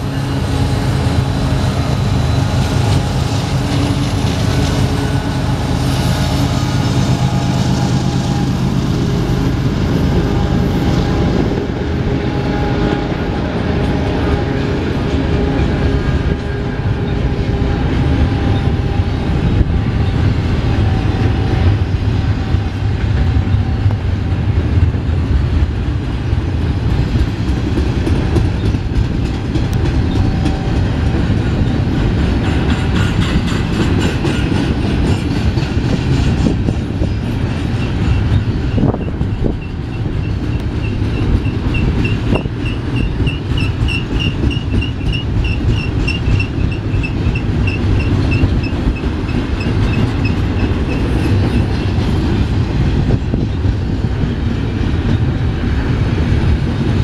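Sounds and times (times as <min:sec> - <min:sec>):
high pulsing squeal: 0:00.0 - 0:24.0
train wheels rumbling on rail: 0:00.0 - 0:57.0
clacking over rail joints: 0:26.7 - 0:53.8.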